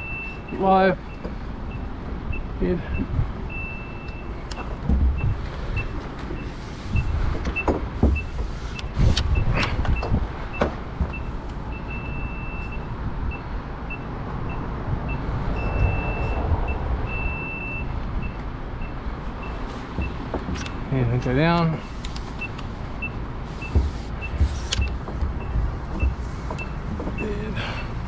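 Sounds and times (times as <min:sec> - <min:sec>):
low engine rumble: 0:00.0 - 0:28.0
sharp clicks and knocks: 0:04.0 - 0:11.6, 0:18.3 - 0:27.3.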